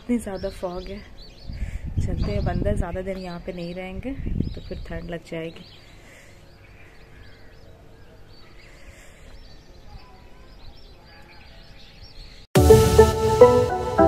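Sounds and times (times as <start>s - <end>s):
small birds chirping: 0.0s - 12.5s
keyboard music: 12.6s - 14.0s.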